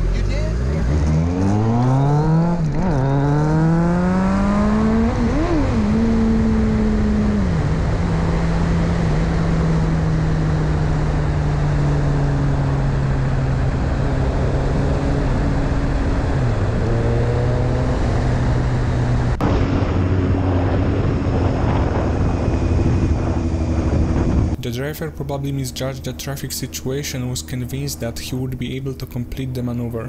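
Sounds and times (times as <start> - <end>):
motorcycle engine running: 0.0 - 19.4
sport bike engine low steady note: 0.0 - 30.0
wind rush on microphone: 4.1 - 24.6.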